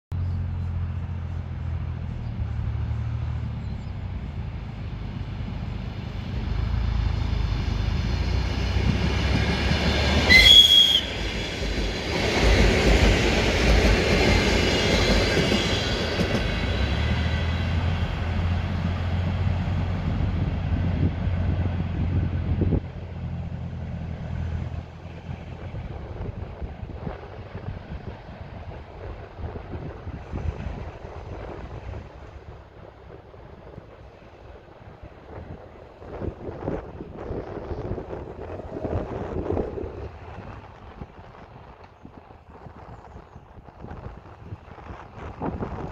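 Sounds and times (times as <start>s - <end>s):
electric train passing: 0.3s - 45.9s
short high train horn: 10.3s - 11.5s.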